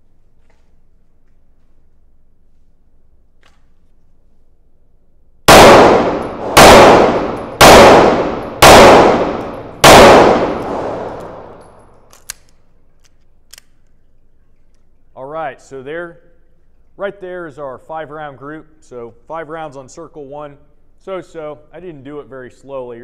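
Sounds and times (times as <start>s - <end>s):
echoing handgun shots: 5.5s - 11.9s.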